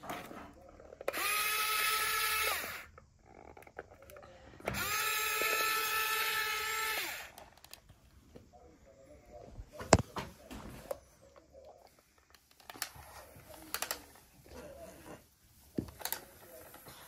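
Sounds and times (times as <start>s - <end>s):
small electric motors whining: 1.0s - 3.8s, 4.6s - 7.5s.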